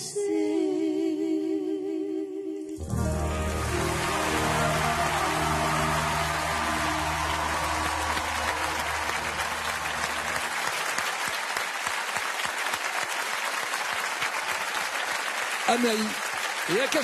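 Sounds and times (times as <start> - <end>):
band holding a chord: 2.8 - 10.6
audience applauding: 2.9 - 17.0.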